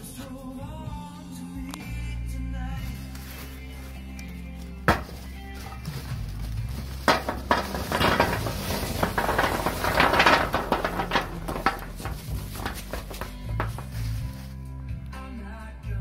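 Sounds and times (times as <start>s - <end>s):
charcoal briquettes clattering: 2.8s - 14.7s.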